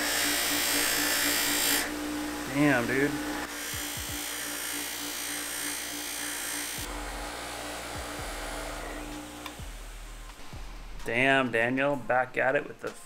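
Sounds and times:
bench grinder motor hum: 0.0s - 10.4s.

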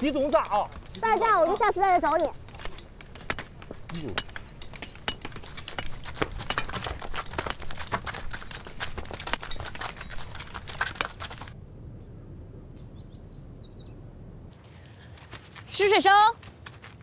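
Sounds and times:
hammers clinking on steel and rock: 0.0s - 11.5s
bird chirps: 12.0s - 14.0s.

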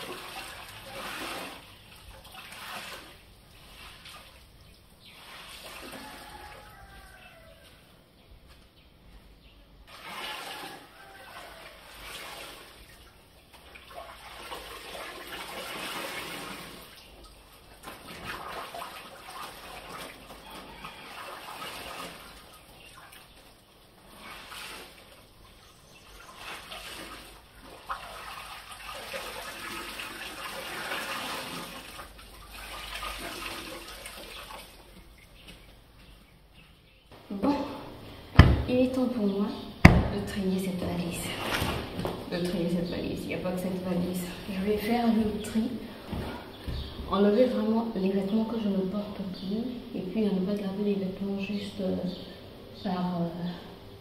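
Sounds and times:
water splashing into basin: 0.0s - 7.3s, 9.9s - 35.5s
wet cloth sloshing: 0.0s - 7.3s, 9.9s - 36.2s, 40.1s - 42.8s.

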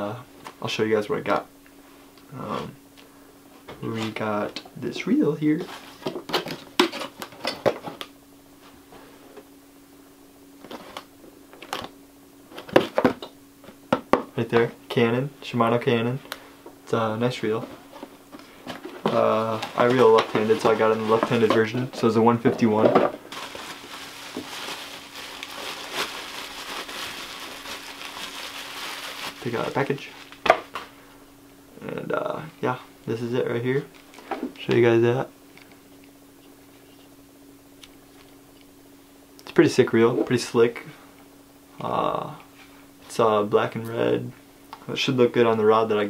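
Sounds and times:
faint steady hum: 0.0s - 46.0s
packaging crinkling and rustling: 17.5s - 30.9s.

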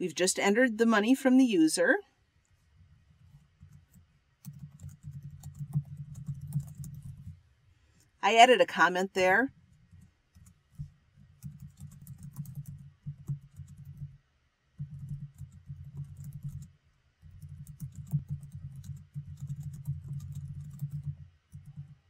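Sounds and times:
typing on a computer keyboard: 3.3s - 7.3s, 9.7s - 14.2s, 14.8s - 22.0s.

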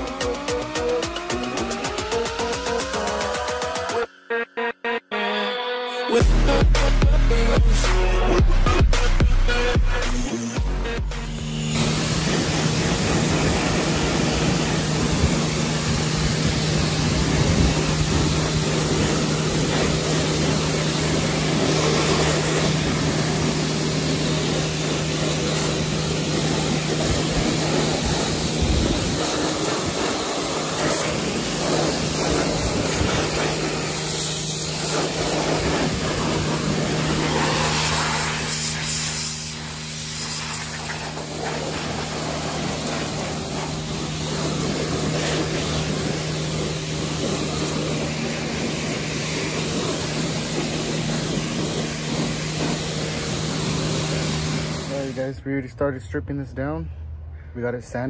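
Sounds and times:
pressure washer jet hissing: 0.0s - 4.1s, 7.8s - 55.4s
washer motor humming: 11.4s - 55.2s.

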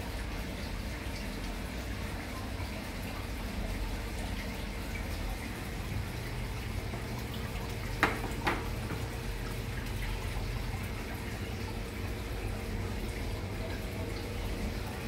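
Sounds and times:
aquarium filter water trickling: 0.0s - 15.0s.

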